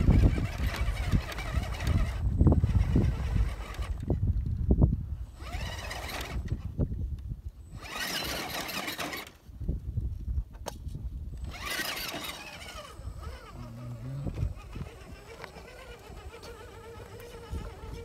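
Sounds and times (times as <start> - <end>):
rc car electric motor whining: 0.0 - 4.3, 5.2 - 9.5, 11.3 - 18.0.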